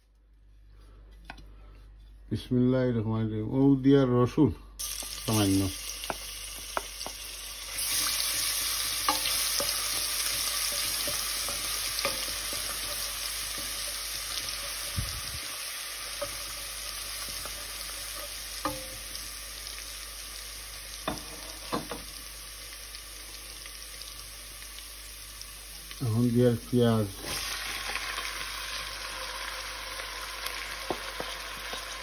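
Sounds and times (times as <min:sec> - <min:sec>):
garlic sizzling in hot oil: 0:04.8 - 0:32.0
wooden spatula knocking a pot: 0:30.8 - 0:31.9.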